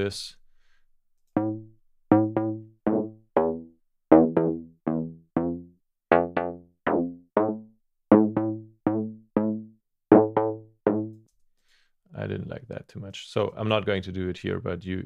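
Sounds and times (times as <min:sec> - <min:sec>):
low bass notes: 0:01.4 - 0:11.2
synth pluck chords: 0:01.4 - 0:11.2.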